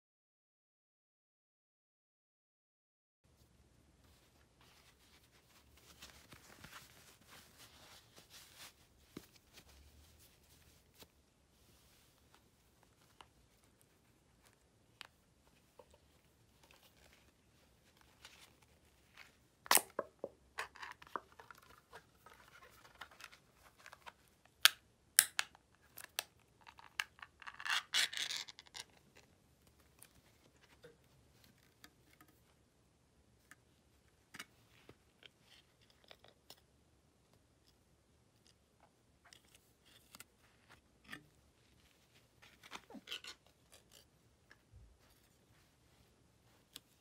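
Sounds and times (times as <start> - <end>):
glove scratching and rustling: 3.4 - 24.5, 39.5 - 47.0.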